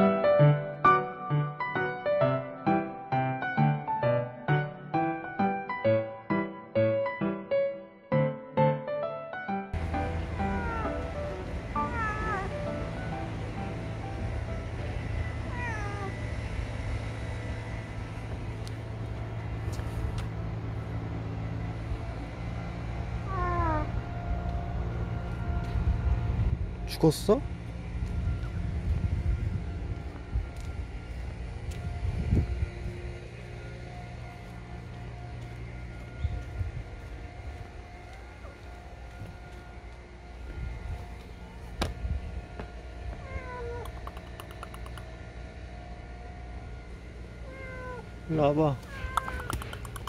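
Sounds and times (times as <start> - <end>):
steady low rumble: 9.8 - 50.0
cat meowing: 10.4 - 12.9, 15.4 - 16.2, 23.3 - 24.0, 43.2 - 44.2, 47.4 - 48.2, 48.8 - 50.0
faint ticks: 43.8 - 45.1, 49.0 - 50.0
sharp click: 43.8 - 45.1, 49.2 - 50.0.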